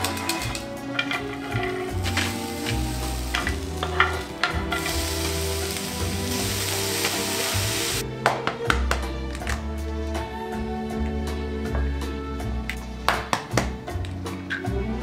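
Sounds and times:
food sizzling in oil: 0:01.8 - 0:08.0.

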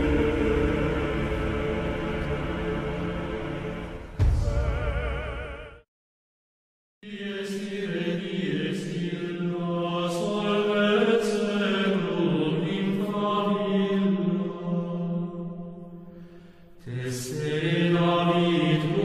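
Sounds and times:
droning vocal chant: 0:00.0 - 0:05.8, 0:07.0 - 0:19.0
low drone: 0:00.0 - 0:05.8.

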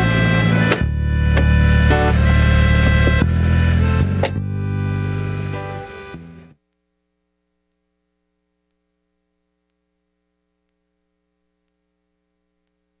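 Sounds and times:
music cue: 0:00.0 - 0:06.5
faint mains hum: 0:03.8 - 0:13.0.

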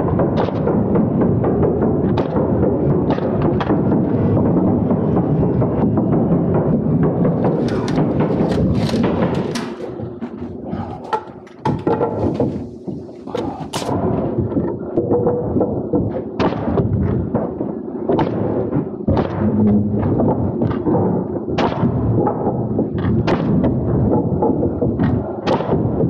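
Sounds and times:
jobsite background noise: 0:06.9 - 0:14.0
nail gun shots: 0:07.4 - 0:10.1, 0:13.3 - 0:14.0.

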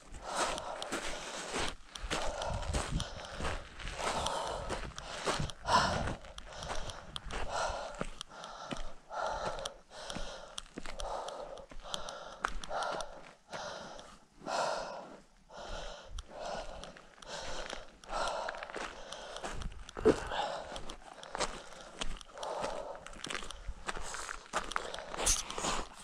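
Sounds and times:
footsteps scuffing: 0:00.0 - 0:09.6, 0:16.7 - 0:26.0
person breathing hard: 0:00.0 - 0:26.0.

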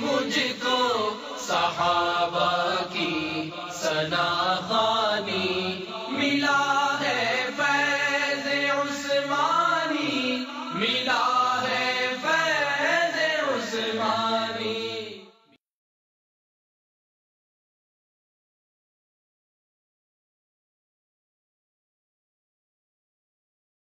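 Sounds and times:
person singing devotional song: 0:00.0 - 0:15.3.

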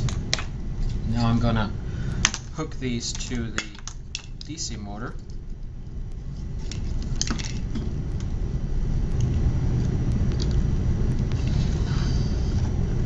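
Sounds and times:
battery wires clicking and rattling: 0:00.0 - 0:01.6, 0:02.2 - 0:08.4
low rumble: 0:00.0 - 0:13.0.

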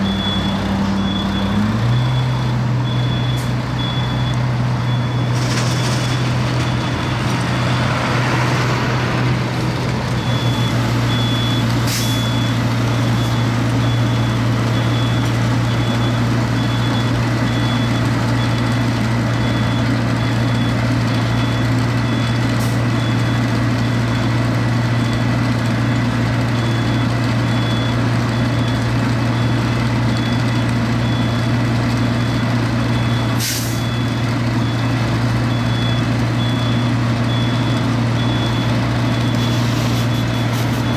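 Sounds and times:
pulsing warning beeper: 0:00.0 - 0:08.0, 0:32.2 - 0:40.9
loud diesel machinery drone: 0:00.0 - 0:40.9
air brake hisses: 0:11.9 - 0:12.2, 0:33.4 - 0:33.8.

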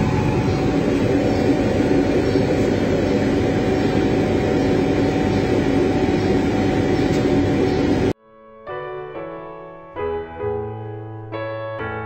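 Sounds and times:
constant machine tone: 0:00.0 - 0:08.2
laser cutting machine running: 0:00.0 - 0:08.2.

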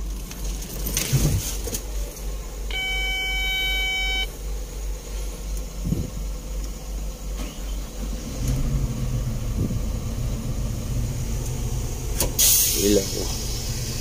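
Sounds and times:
low engine rumble: 0:00.0 - 0:14.0
electronic warning buzzer beep: 0:02.7 - 0:04.3.

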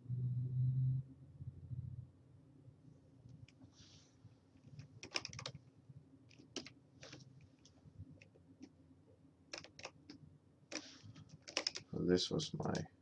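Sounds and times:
faint keyboard keystrokes: 0:04.6 - 0:05.6, 0:06.3 - 0:08.7, 0:09.5 - 0:11.9, 0:12.6 - 0:12.9.

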